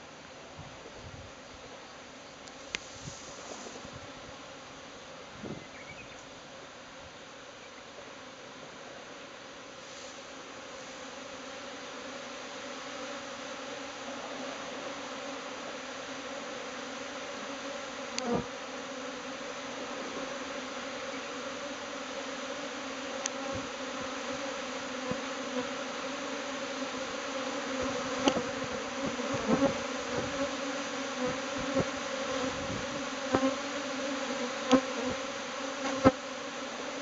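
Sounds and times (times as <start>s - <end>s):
swarm of bees humming: 0.0s - 37.0s
single bees buzzing close: 9.8s - 37.0s.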